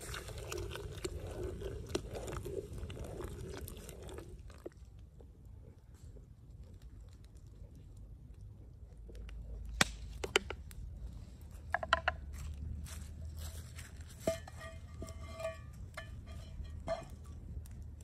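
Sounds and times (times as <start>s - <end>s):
metal cookware clinking: 14.3s - 17.2s.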